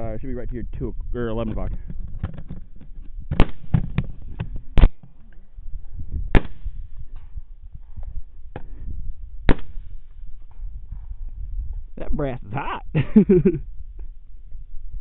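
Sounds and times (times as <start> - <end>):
loud rifle shots: 3.3 - 4.0, 6.3 - 6.8, 9.5 - 10.0
faint rifle shots: 9.5 - 10.0.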